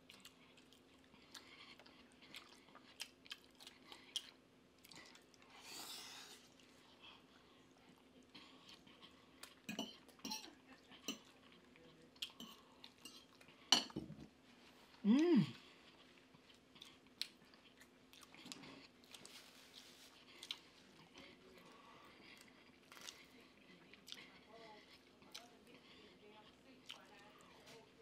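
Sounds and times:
chewing and biting: 0:00.0 - 0:05.6, 0:15.6 - 0:27.8
faint steady hum: 0:00.0 - 0:28.0.

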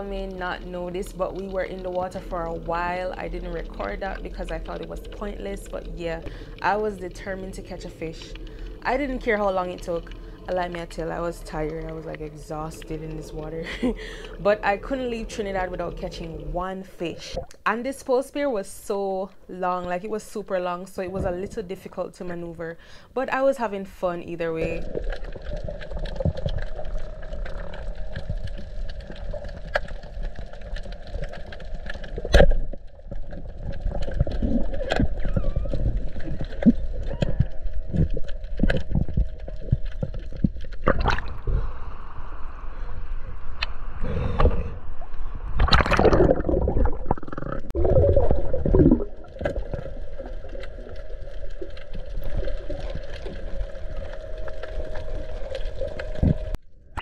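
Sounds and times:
steady hum: 0:00.0 - 0:17.8, 0:36.1 - 0:57.0
water sloshing and gurgling: 0:00.0 - 0:18.0, 0:20.9 - 0:23.1, 0:24.0 - 0:57.0.

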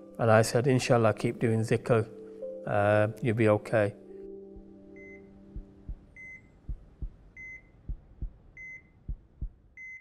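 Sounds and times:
patient monitor beeping: 0:04.2 - 0:09.2, 0:09.8 - 0:10.0
heartbeat thumps: 0:04.5 - 0:04.8, 0:05.6 - 0:10.0.

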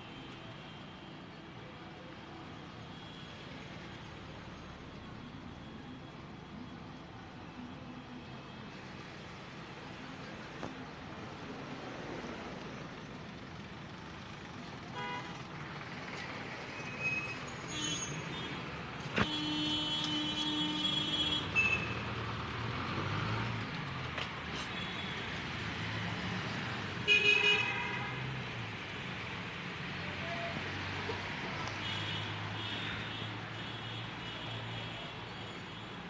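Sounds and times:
vehicle horns honking: 0:15.0 - 0:15.3.

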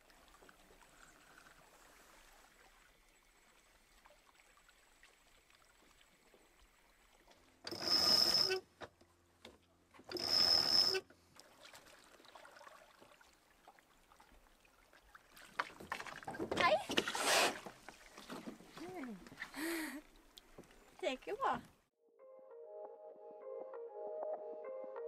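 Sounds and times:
sailboat winch cranking: 0:07.7 - 0:08.7, 0:10.1 - 0:11.1.

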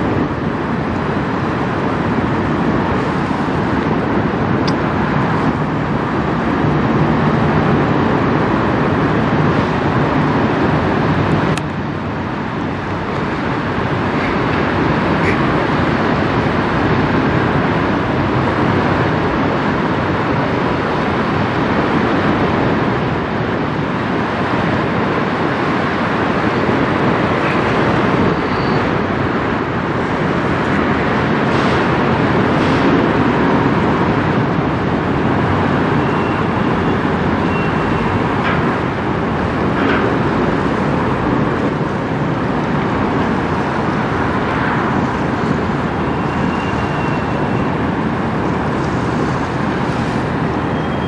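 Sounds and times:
road traffic rumble: 0:00.0 - 0:51.0
ship engine drone: 0:00.0 - 0:51.0.

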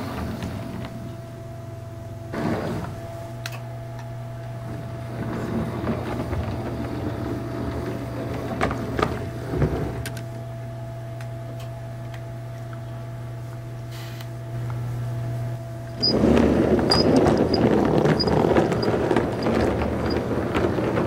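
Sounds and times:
steady low hum: 0:00.0 - 0:21.0
model train rattling over rail joints: 0:16.0 - 0:21.0.

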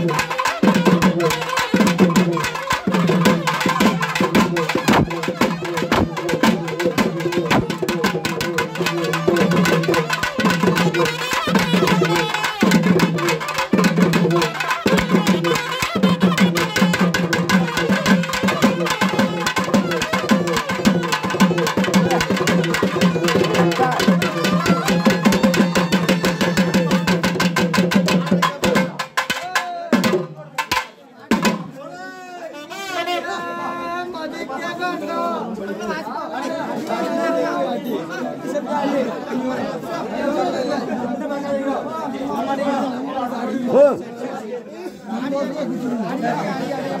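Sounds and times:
fast dense drumming: 0:00.0 - 0:31.7.

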